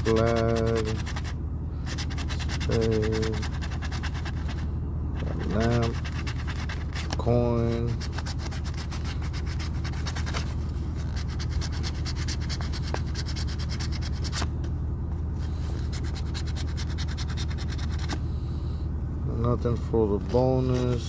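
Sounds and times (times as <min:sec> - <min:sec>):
coin scratching lottery ticket: 0:00.0 - 0:04.6, 0:05.2 - 0:14.4, 0:15.8 - 0:18.2.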